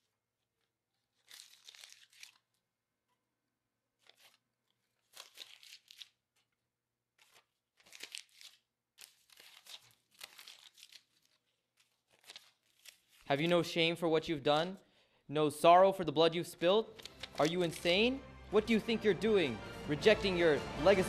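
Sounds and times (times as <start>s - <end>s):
paper tearing and crumpling: 0.9s - 2.6s, 4.0s - 6.5s, 7.1s - 13.3s, 16.9s - 18.0s.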